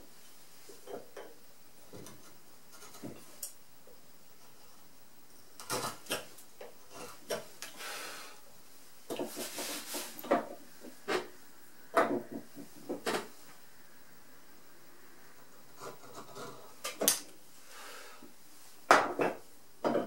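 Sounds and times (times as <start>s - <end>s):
gouge scraping wood: 15.8s - 16.8s.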